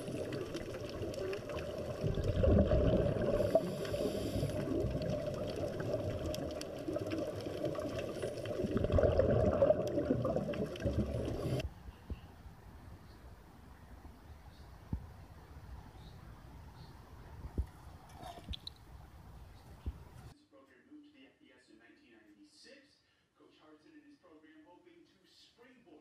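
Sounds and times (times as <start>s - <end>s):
exhaled air bubbles: 0.0s - 11.6s
underwater bubbling and rumbling: 0.0s - 11.6s.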